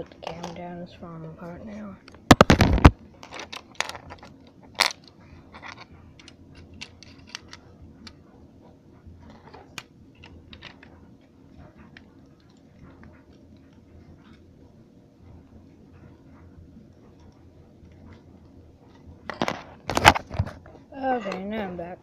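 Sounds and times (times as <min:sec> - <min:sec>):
plastic bricks clicking and rattling: 0:02.3 - 0:07.6.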